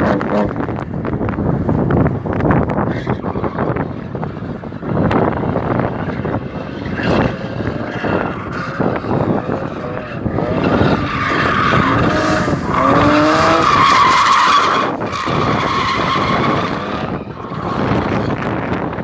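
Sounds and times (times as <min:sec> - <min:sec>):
car engine revving: 0:04.1 - 0:18.8.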